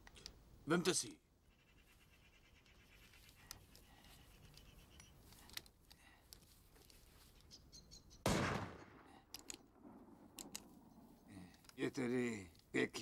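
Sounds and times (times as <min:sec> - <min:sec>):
gunshot bang: 0:08.3 - 0:09.2
pistol handling clicks: 0:09.3 - 0:09.7, 0:10.3 - 0:10.8.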